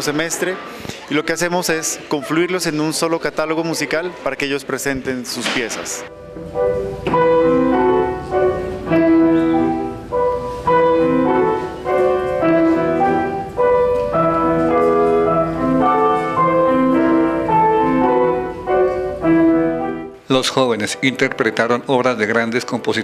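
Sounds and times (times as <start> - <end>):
classical piano duet: 5.3 - 20.2.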